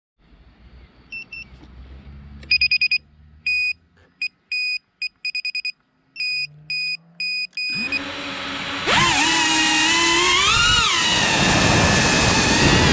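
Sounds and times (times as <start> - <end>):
electronic buzzer beeping: 4.5 - 8.1
drone motors spinning up: 7.6 - 12.9.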